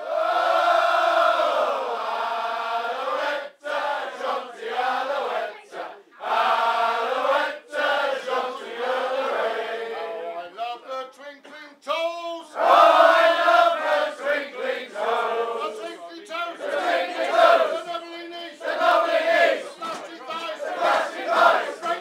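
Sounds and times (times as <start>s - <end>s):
men singing together: 18.6s - 22.0s.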